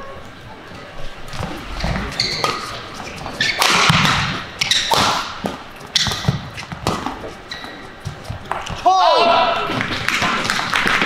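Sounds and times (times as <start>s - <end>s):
shoes squeaking on court: 0.2s - 8.8s
racket hitting shuttlecock: 2.2s - 7.3s.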